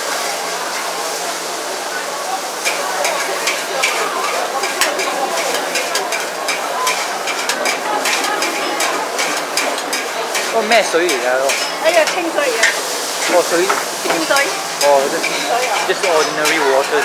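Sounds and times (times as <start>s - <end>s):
noodles sizzling in a wok: 0.0s - 17.0s
metal spatula scraping a wok: 4.6s - 17.0s.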